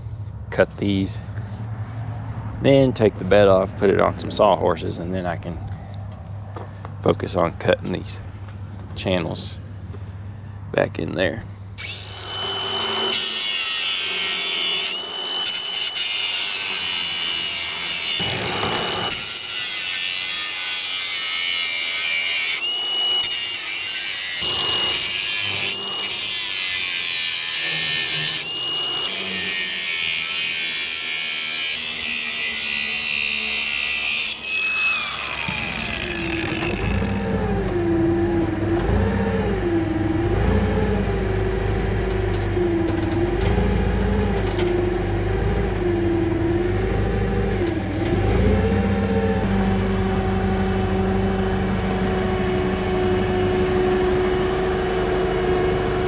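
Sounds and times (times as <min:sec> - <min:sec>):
angle grinder cutting steel: 0:11.8 - 0:56.0
forklift engine running: 0:35.4 - 0:56.0.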